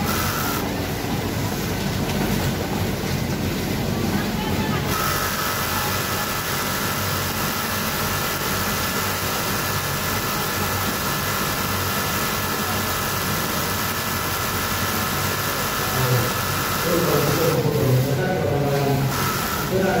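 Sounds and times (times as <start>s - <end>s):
sewing machine running: 0.0s - 0.7s, 4.8s - 20.0s
hum of sewing machines: 0.0s - 20.0s.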